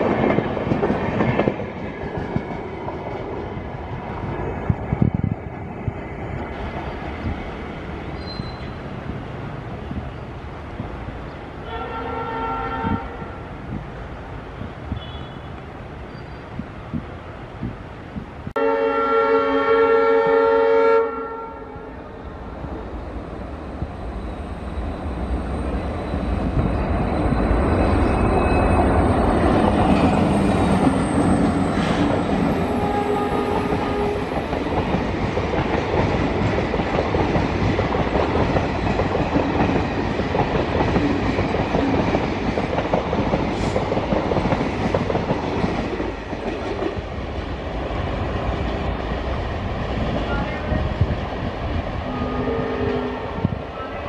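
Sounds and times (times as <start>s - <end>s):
train wheels clattering over rails: 0.0s - 5.6s, 25.7s - 50.2s
diesel locomotive horn: 11.6s - 13.5s, 14.9s - 15.6s, 18.6s - 22.2s, 32.5s - 34.4s, 52.0s - 54.0s.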